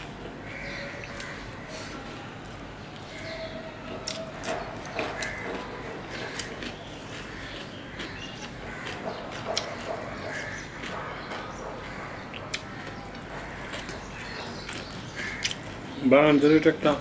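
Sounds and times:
steady low hum: 0.0 - 17.0
fingers mixing rice on a plate: 4.0 - 15.7
chewing with lip smacks: 4.0 - 15.8.

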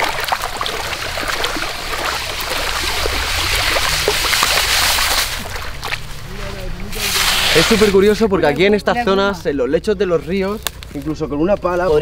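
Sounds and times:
water sloshing in a sieve: 0.0 - 8.0
flowing stream: 0.0 - 8.2.

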